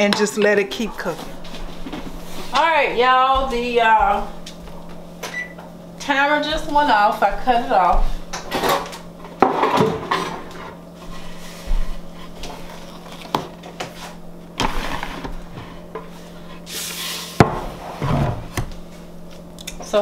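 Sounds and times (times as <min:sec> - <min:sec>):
knocks and clatter on countertop: 0:08.3 - 0:10.7, 0:17.4 - 0:18.7
cutting board scraping and knocking: 0:17.4 - 0:18.7.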